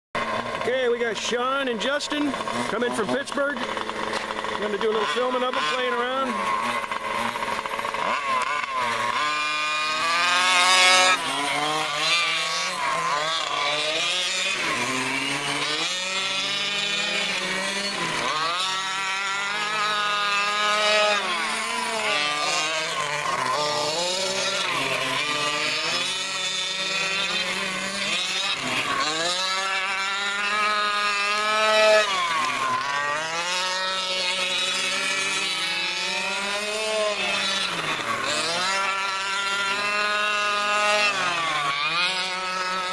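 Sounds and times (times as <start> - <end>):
rc truck motors buzzing: 0.2 - 42.9.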